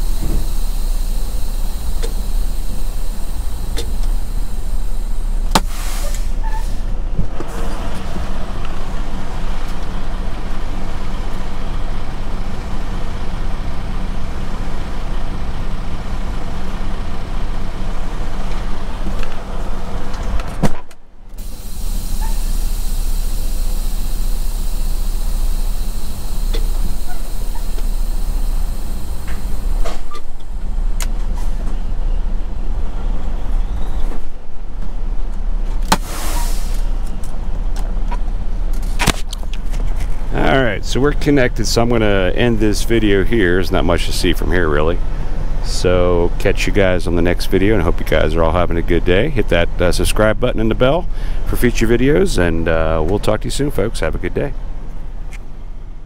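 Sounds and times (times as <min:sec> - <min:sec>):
loud engine burst: 0:00.0 - 0:06.4, 0:21.4 - 0:31.0, 0:35.9 - 0:37.1
diesel truck engine idling: 0:00.0 - 0:20.1, 0:21.3 - 0:34.1, 0:39.4 - 0:56.0.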